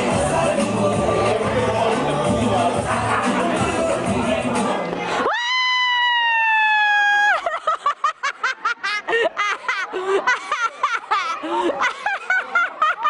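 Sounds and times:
people laughing: 0:01.8 - 0:04.1, 0:07.0 - 0:13.0.

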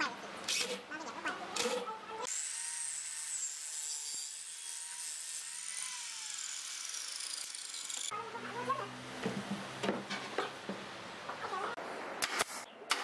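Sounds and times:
saw cutting through wood: 0:01.6 - 0:08.1.

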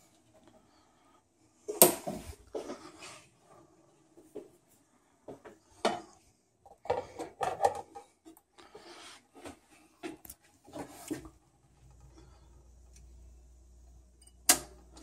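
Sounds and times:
vinyl record being handled: 0:09.4 - 0:12.0.

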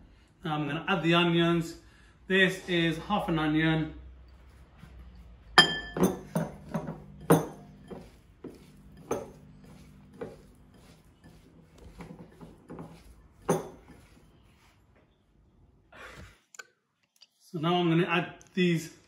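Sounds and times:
soft knocks of mixing: 0:04.2 - 0:14.7
spoon clinking on glass bowl: 0:05.6 - 0:11.4, 0:13.4 - 0:14.0.

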